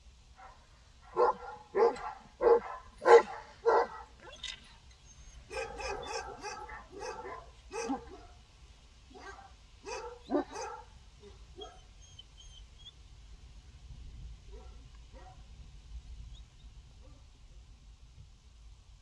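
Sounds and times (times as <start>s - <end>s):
dog barking: 0.4s - 4.4s, 5.4s - 8.4s, 9.1s - 11.9s, 14.5s - 15.4s.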